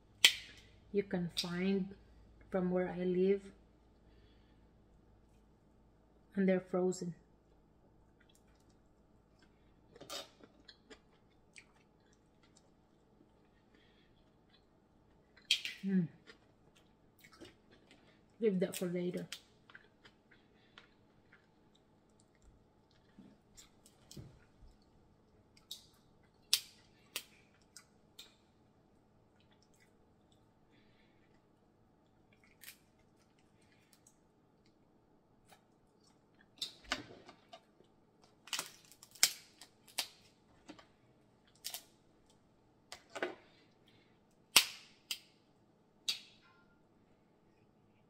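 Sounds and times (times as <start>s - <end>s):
crab shells snapping: 15.4s - 15.8s, 25.6s - 28.4s, 38.4s - 40.3s, 41.5s - 41.9s, 44.5s - 45.3s.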